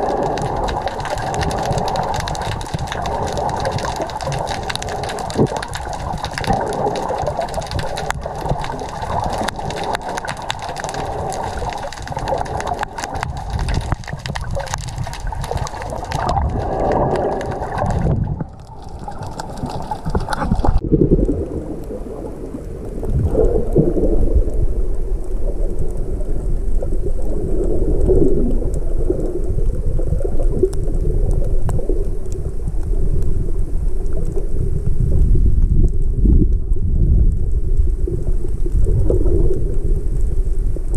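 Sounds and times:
dense crackle of fine clicks: 0:00.0 - 0:40.9
muffled underwater gurgling: 0:00.0 - 0:40.9.

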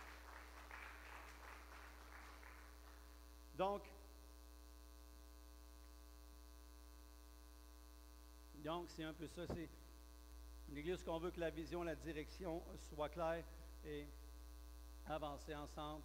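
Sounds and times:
faint applause: 0:00.0 - 0:03.0
electrical mains hum: 0:00.0 - 0:16.0.

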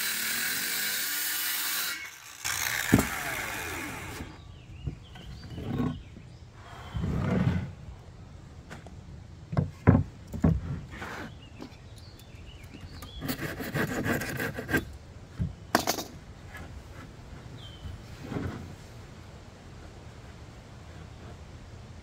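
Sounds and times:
wood sliding on wood: 0:06.6 - 0:07.8.

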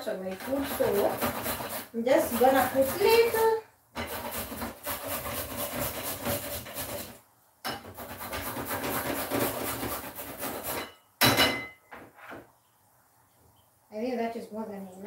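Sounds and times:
carrot grating on grater: 0:00.0 - 0:07.2, 0:07.8 - 0:10.9.

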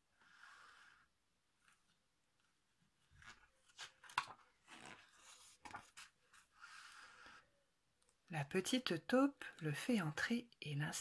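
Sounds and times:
book page turning and rustling: 0:01.6 - 0:06.6.

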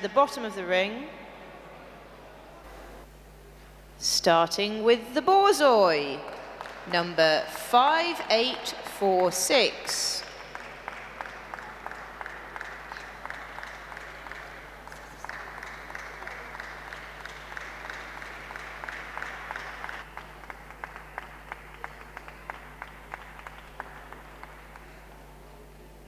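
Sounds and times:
audience applauding: 0:06.3 - 0:07.2, 0:10.1 - 0:25.6.

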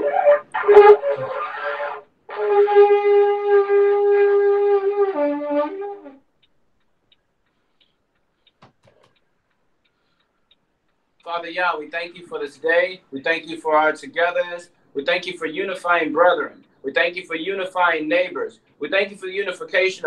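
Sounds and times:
shofar blast: 0:00.0 - 0:06.2.

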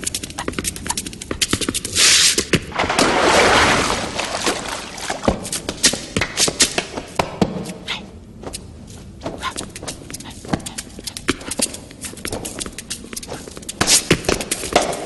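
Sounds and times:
dance shoes tapping on street: 0:00.0 - 0:01.9, 0:08.4 - 0:15.0
shoes scraping slides: 0:00.1 - 0:07.8, 0:08.5 - 0:15.0.

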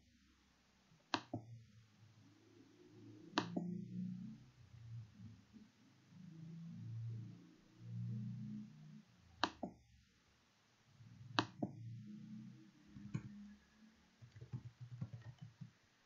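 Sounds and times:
computer mouse clicks: 0:01.1 - 0:01.5, 0:03.3 - 0:03.8, 0:09.4 - 0:09.8, 0:11.3 - 0:11.8, 0:13.0 - 0:13.4, 0:14.2 - 0:15.8
keyboard keystrokes: 0:13.0 - 0:13.3, 0:14.2 - 0:15.8.

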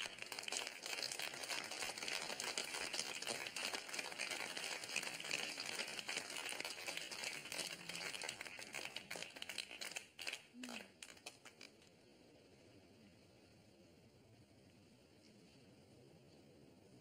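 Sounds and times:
crowd applauding: 0:00.0 - 0:11.7.

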